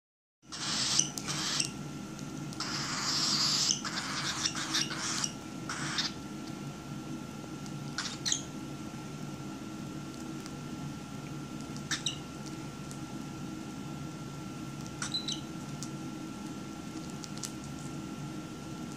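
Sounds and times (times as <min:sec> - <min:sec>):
bird crunching seeds: 0:14.8 - 0:18.0.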